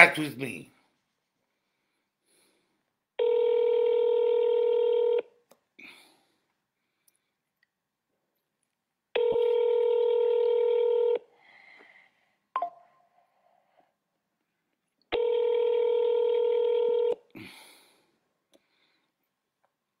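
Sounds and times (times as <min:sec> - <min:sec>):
phone ringback tone: 0:03.2 - 0:05.3, 0:09.2 - 0:11.2, 0:15.2 - 0:17.2.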